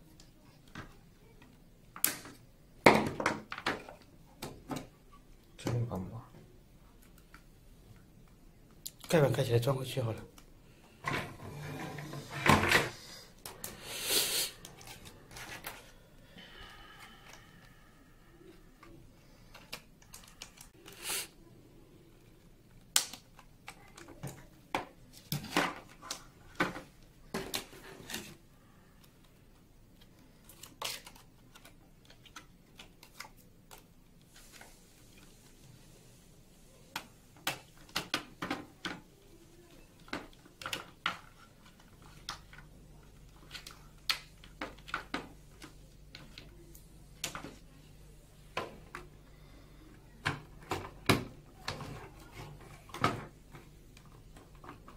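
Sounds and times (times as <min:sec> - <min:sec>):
plastic parts clicking and knocking: 0:00.6 - 0:06.0, 0:18.8 - 0:20.8, 0:22.7 - 0:28.4, 0:36.9 - 0:39.3, 0:39.9 - 0:46.5, 0:50.2 - 0:54.9.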